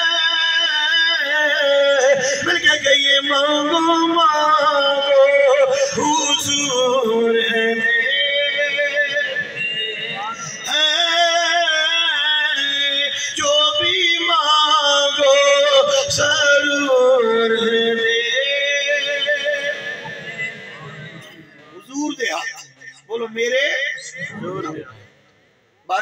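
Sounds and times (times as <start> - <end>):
man singing long notes: 0.0 - 20.5.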